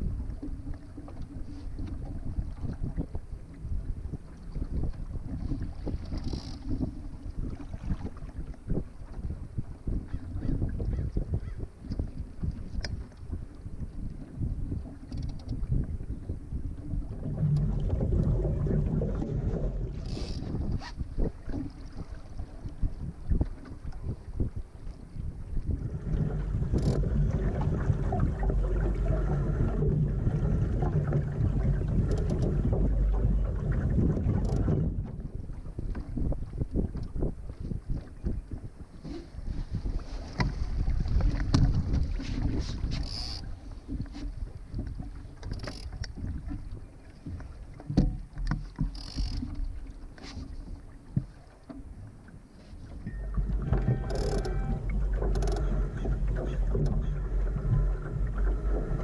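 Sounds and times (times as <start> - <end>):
wind buffeting microphone: 0.0 - 49.8, 52.9 - 59.0
water splashing along hull: 0.0 - 59.0
sharp knocks from boat: 29.6 - 52.0, 52.7 - 59.0.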